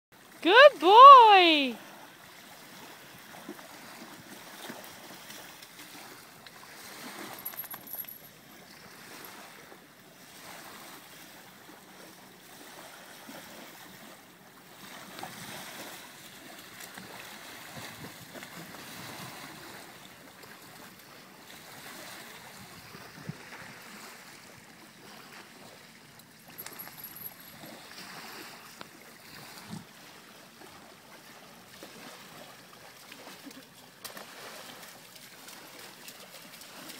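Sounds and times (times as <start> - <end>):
small waves lapping on sand: 0.2 - 36.9
dog wading splashing: 26.5 - 36.9.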